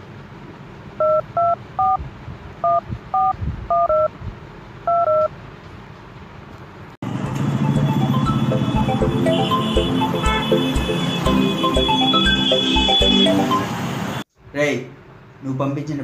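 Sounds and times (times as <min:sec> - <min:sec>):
phone keypad touch-tones: 0:02.6 - 0:04.1
music: 0:07.7 - 0:13.7.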